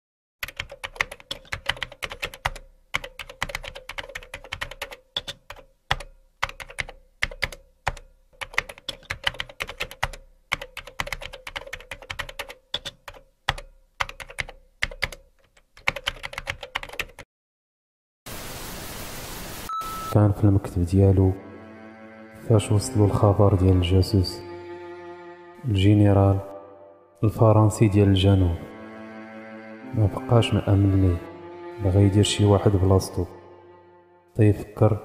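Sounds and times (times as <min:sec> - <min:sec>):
rapid keyboard typing: 0:00.4 - 0:17.2.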